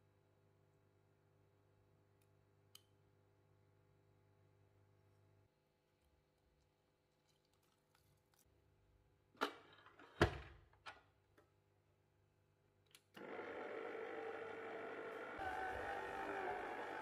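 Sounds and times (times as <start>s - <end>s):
stand mixer motor running: 13.2s - 17.0s.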